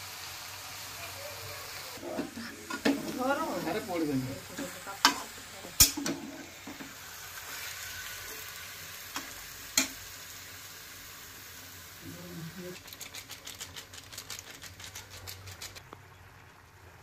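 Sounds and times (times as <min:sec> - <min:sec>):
food sizzling: 0:00.0 - 0:15.8.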